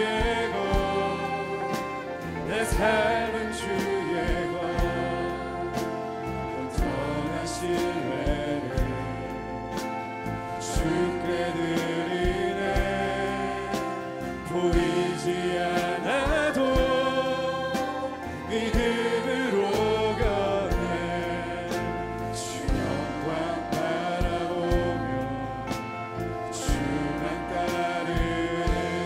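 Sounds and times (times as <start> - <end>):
man singing: 0.0 - 5.8, 6.5 - 9.5, 10.6 - 25.8, 26.4 - 29.0
acoustic guitar: 0.0 - 29.0
worship band playing: 0.0 - 29.0
steady low beat: 14.4 - 29.0.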